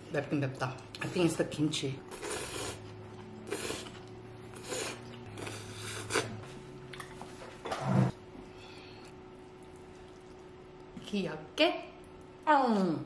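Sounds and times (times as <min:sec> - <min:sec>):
person slurping noodles: 0:02.1 - 0:06.4.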